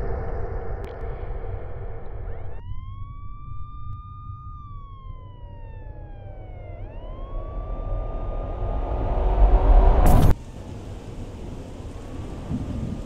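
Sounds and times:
rushing noise: 0.0s - 2.6s, 5.9s - 12.3s
steady low rumble: 0.0s - 13.0s
siren wailing: 0.6s - 10.4s.

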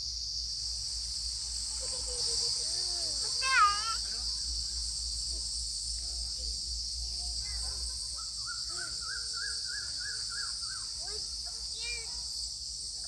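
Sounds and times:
insects droning: 0.0s - 13.0s
birds calling: 8.1s - 12.1s.

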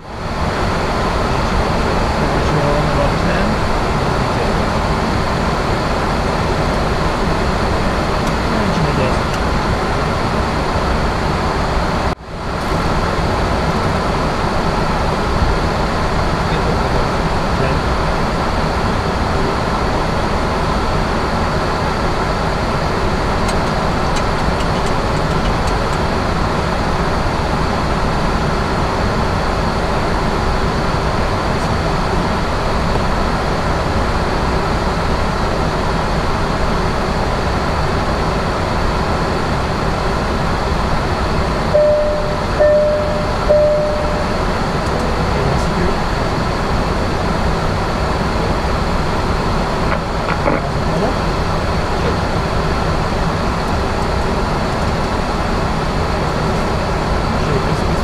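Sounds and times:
cockpit in-flight noise: 0.0s - 58.0s
short electronic beeps: 41.8s - 45.2s.

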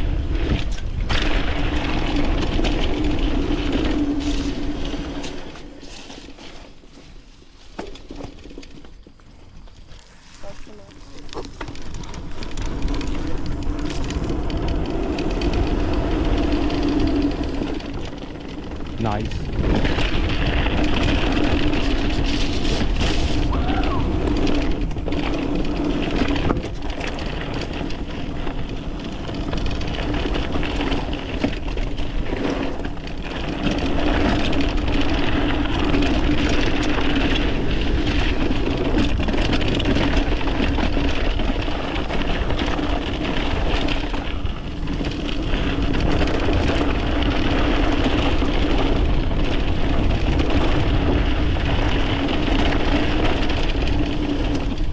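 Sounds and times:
wind on microphone: 0.0s - 5.2s, 18.8s - 54.9s
bike clattering over bumps: 0.0s - 54.9s
tyres rolling over dirt and rocks: 0.0s - 54.9s.

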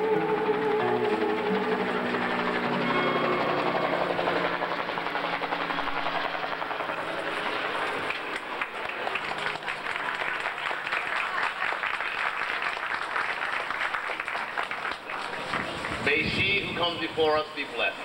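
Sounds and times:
crowd applauding: 7.4s - 16.2s.

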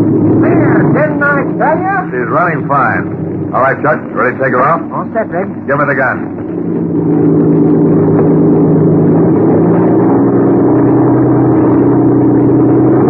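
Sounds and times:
light aircraft engine at full throttle: 0.0s - 13.0s.

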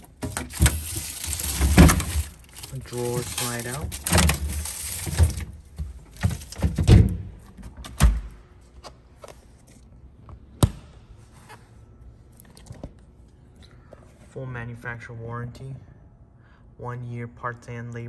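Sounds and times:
plastic wrapping rustling: 0.0s - 6.8s
refrigerator drawer sliding out: 0.0s - 7.2s.

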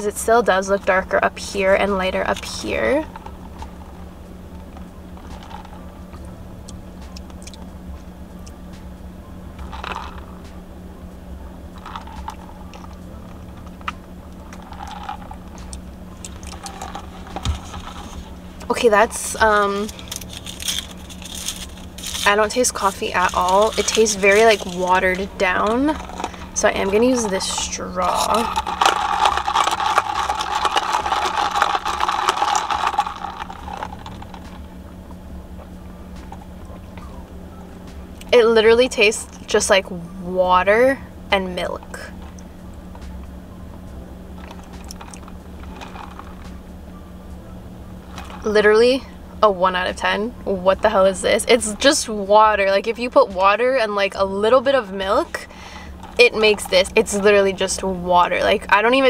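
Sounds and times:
steady low hum: 0.0s - 59.0s
plastic handling: 11.8s - 18.8s, 19.8s - 34.7s, 44.4s - 46.5s.

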